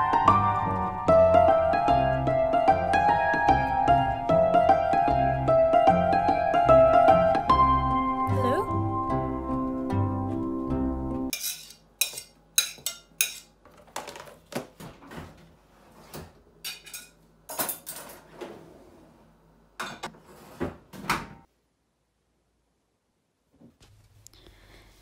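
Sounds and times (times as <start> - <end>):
crockery and cutlery clattering: 11.3 - 14.2, 16.6 - 18.3.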